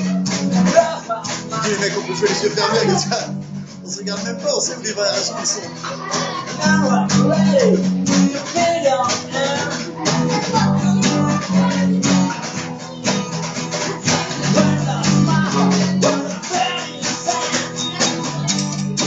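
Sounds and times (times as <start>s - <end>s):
electric bass guitar plucked: 0.0s - 19.0s.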